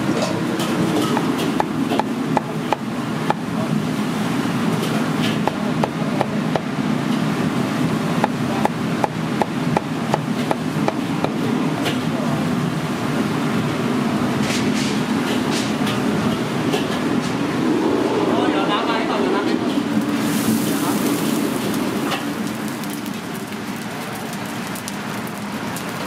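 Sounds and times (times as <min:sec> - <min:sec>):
kitchen equipment roar: 0:00.0 - 0:26.0
utensil knocking rhythmically: 0:01.1 - 0:03.4.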